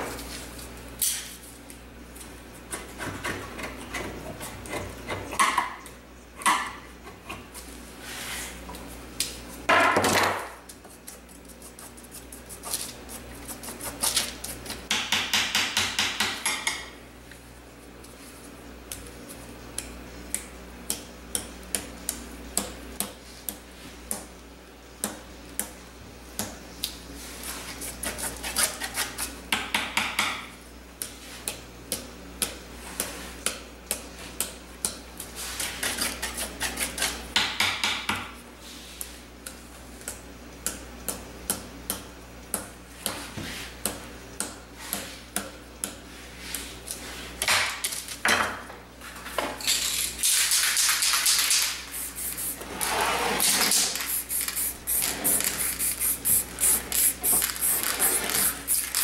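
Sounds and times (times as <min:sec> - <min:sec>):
spray paint can rattling: 0:53.9 - 0:59.0.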